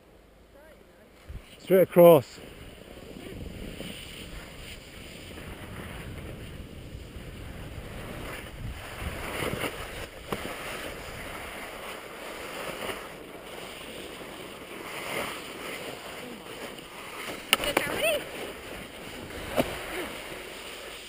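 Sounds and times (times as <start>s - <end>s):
skis scraping over snow: 1.1s - 21.0s
wind buffeting microphone: 2.4s - 11.8s, 16.0s - 20.4s.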